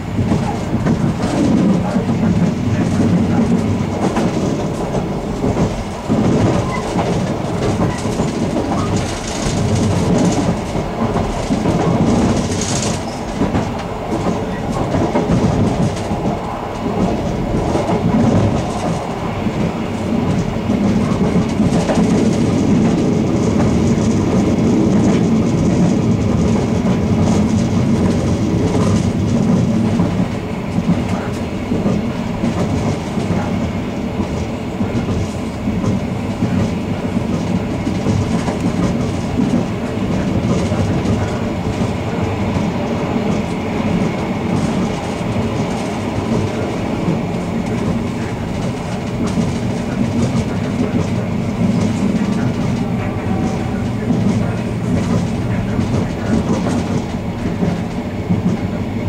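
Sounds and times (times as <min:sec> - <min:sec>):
train rumble: 0:00.0 - 0:59.0
wheels clattering over rail joints: 0:00.2 - 0:16.3.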